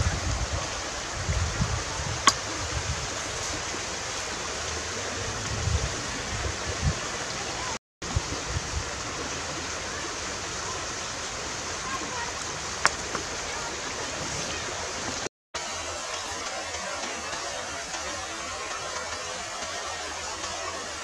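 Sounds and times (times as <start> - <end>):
wind buffeting microphone: 0.0 - 15.3
river flowing: 0.0 - 21.0.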